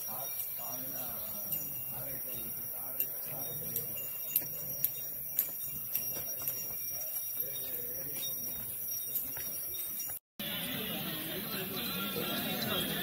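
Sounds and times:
insects droning: 0:00.0 - 0:10.2
distant voices murmuring: 0:00.0 - 0:13.0.

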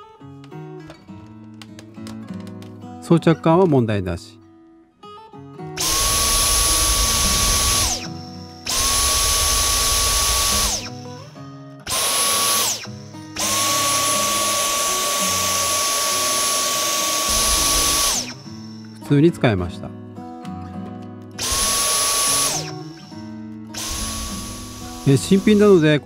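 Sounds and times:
vacuum motor whining: 0:05.8 - 0:11.3, 0:11.9 - 0:19.0, 0:21.4 - 0:23.2, 0:23.8 - 0:26.0.

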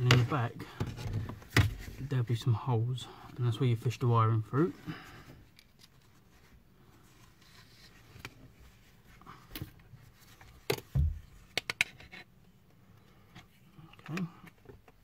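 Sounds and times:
dull thump: 0:10.9 - 0:11.3.

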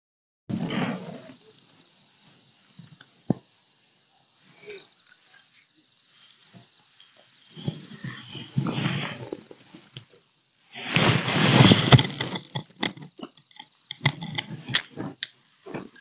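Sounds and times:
fishing rod and reel rustling: 0:10.8 - 0:13.2.

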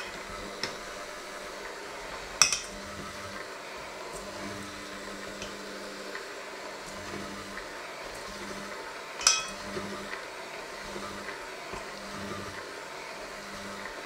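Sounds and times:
electric hand mixer running: 0:00.0 - 0:14.0
beater clanking on steel bowl: 0:02.4 - 0:02.8, 0:09.2 - 0:09.9.

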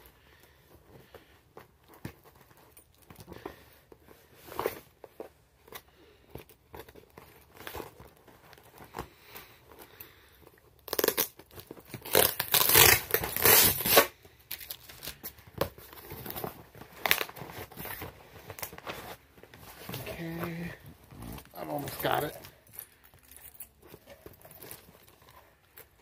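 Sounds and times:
cardboard crinkling: 0:00.8 - 0:26.0
cardboard ripping: 0:10.9 - 0:14.1.

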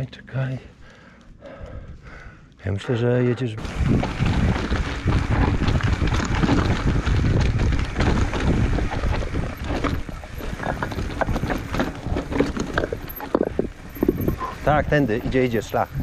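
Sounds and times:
bike rattling knocks: 0:03.6 - 0:15.9
bike tyres grinding on stones: 0:03.6 - 0:16.0
wind buffeting microphone: 0:03.6 - 0:16.0.

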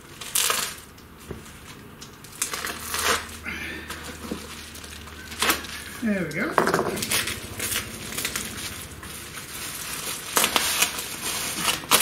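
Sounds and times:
plastic crinkling and tearing: 0:00.0 - 0:12.0
knife slicing plastic wrap: 0:09.7 - 0:12.0.

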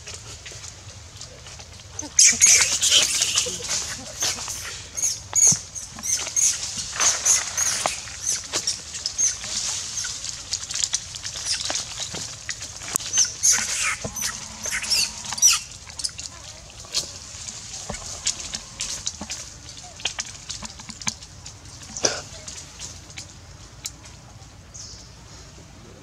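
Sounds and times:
monkey screaming: 0:02.0 - 0:08.5, 0:13.1 - 0:16.2.

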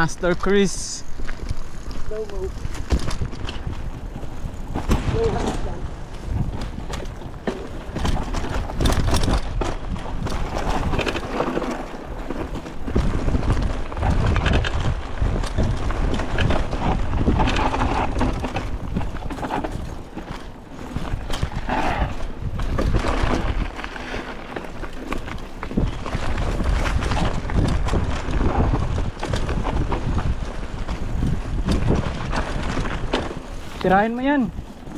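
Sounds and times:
wind rumble on microphone: 0:00.0 - 0:34.9
bike clattering over bumps: 0:00.4 - 0:34.9.

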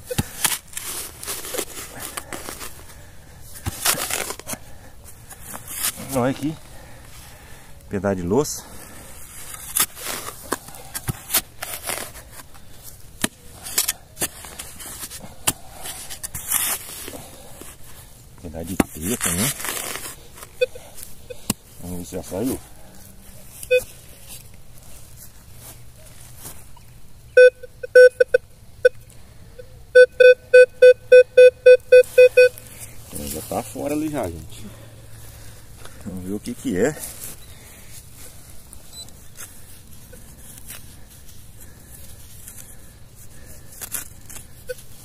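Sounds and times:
digging soil with crockery fragments: 0:00.0 - 0:27.4, 0:31.9 - 0:45.0
metal detector beeping: 0:20.6 - 0:21.5, 0:23.6 - 0:24.0, 0:27.4 - 0:29.0, 0:29.6 - 0:32.6, 0:38.8 - 0:39.2, 0:44.6 - 0:45.0.

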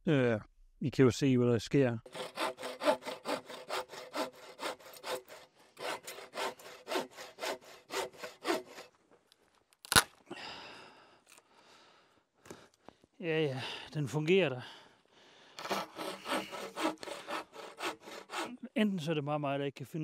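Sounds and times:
bow saw cutting a log: 0:02.1 - 0:09.0, 0:15.6 - 0:18.7.

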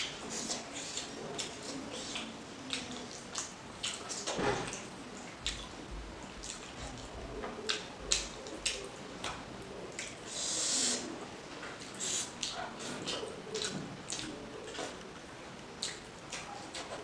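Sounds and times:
wet chewing and eating by hand: 0:00.0 - 0:17.0.

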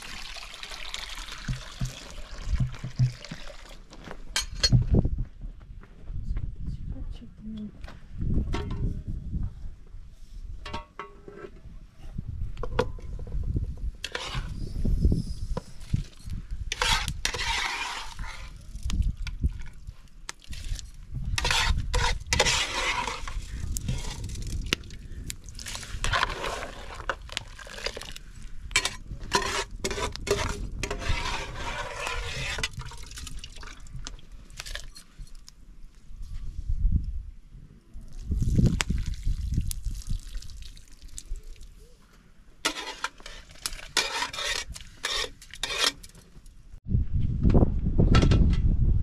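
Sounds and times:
liquid pouring and splashing: 0:00.0 - 0:03.9, 0:31.8 - 0:35.0, 0:38.1 - 0:41.7.

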